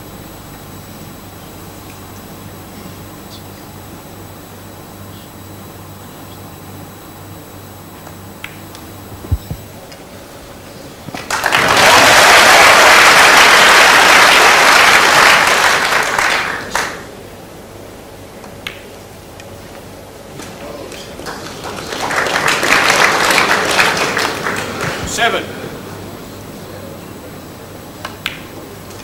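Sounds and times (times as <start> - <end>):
crowd applauding: 11.1 - 17.1, 20.4 - 27.4.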